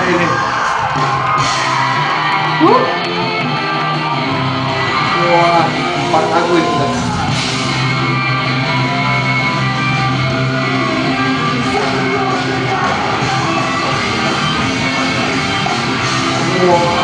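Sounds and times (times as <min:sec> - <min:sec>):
drums: 0:00.0 - 0:17.0
electric guitars: 0:00.0 - 0:17.0
person singing: 0:10.5 - 0:15.1.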